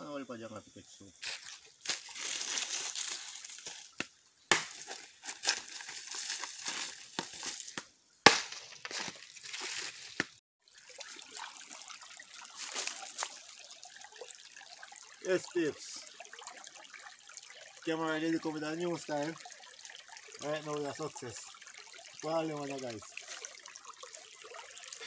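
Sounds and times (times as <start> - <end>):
trickling water: 0.0 - 25.0
dry leaves rustling and crackling: 1.2 - 4.0, 4.7 - 7.8, 8.6 - 10.3.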